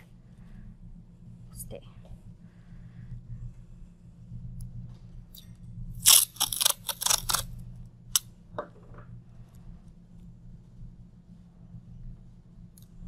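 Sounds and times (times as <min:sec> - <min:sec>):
masking tape ripping off roll: 0:06.0 - 0:07.4.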